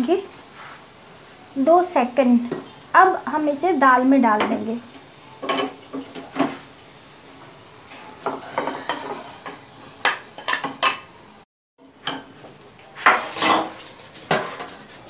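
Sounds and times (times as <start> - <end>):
light sizzle: 0.0 - 15.0
metal spoon scraping steel pan: 8.4 - 9.5, 13.1 - 15.0.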